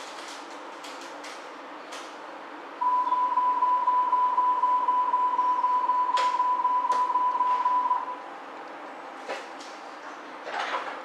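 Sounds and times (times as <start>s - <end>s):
steady high warning beep: 2.8s - 8.3s.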